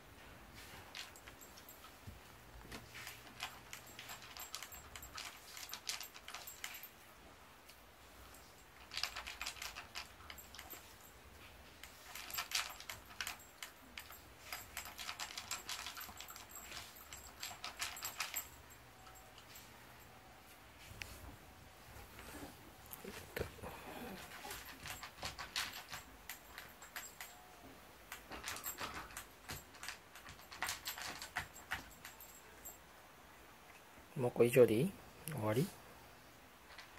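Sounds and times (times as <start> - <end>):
collar tag clinking: 0.6 - 7.0, 7.7 - 21.2, 22.8 - 32.9
dog crunching kibble: 8.8 - 10.8.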